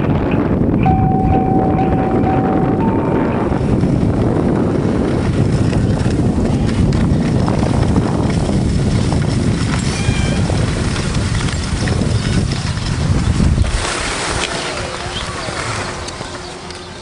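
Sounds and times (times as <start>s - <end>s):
wind buffeting microphone: 0.0s - 17.0s
scrape of gliding over snow: 3.6s - 17.0s.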